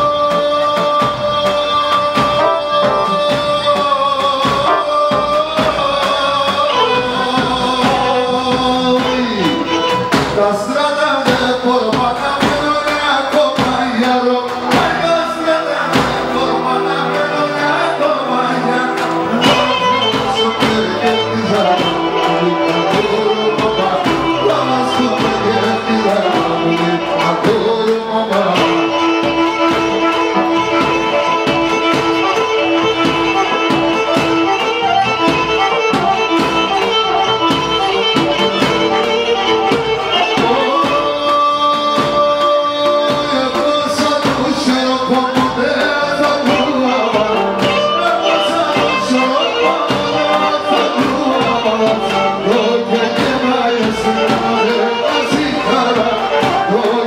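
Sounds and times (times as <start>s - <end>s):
keyboard: 0.0s - 57.0s
man singing: 0.0s - 57.0s
steady beat: 0.0s - 57.0s.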